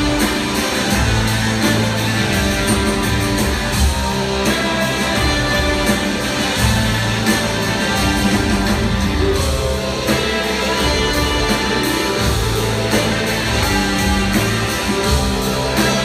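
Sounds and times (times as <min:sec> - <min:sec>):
bass guitar: 0:00.0 - 0:16.0
drums: 0:00.0 - 0:16.0
guitars: 0:00.0 - 0:16.0.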